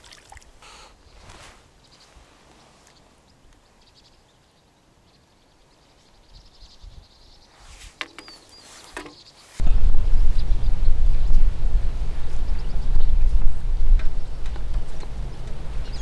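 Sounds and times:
high bird chirp: 0:03.7 - 0:09.6
loud low rumble: 0:09.6 - 0:16.0.

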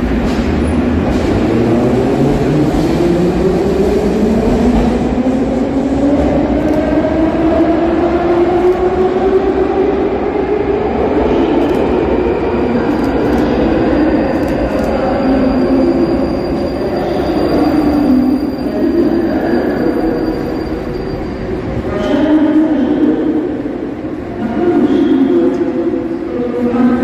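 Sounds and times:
train wheels rumbling on rails: 0:00.0 - 0:27.0.

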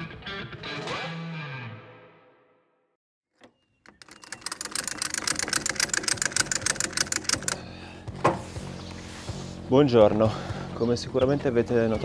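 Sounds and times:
ratchet clicking rapidly: 0:03.9 - 0:07.6.

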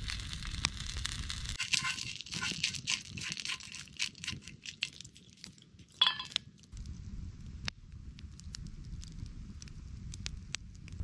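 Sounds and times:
campfire crackling: 0:00.0 - 0:11.0
stick scraping metal pan: 0:01.6 - 0:04.9.

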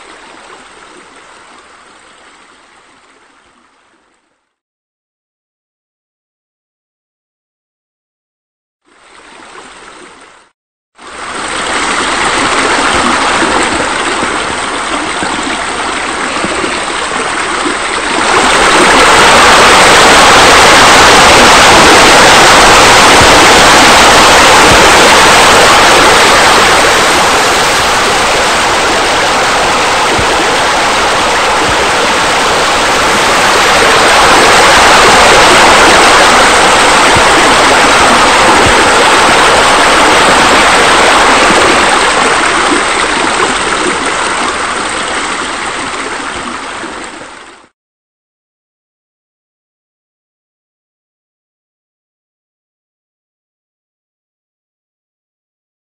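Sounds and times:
rush of falling water: 0:11.0 - 0:47.7.

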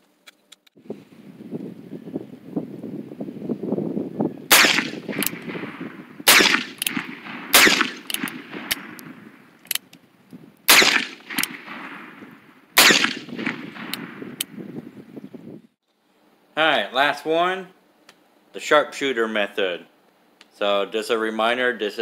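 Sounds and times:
revolver shots: 0:04.5 - 0:09.2, 0:10.7 - 0:14.4.

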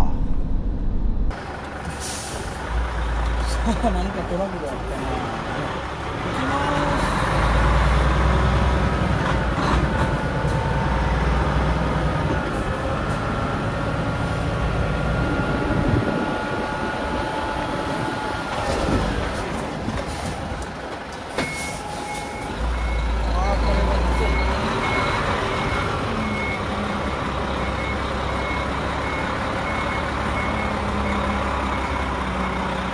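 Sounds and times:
engine whine: 0:00.0 - 0:03.5
truck diesel engine pulling hard: 0:00.0 - 0:32.9.

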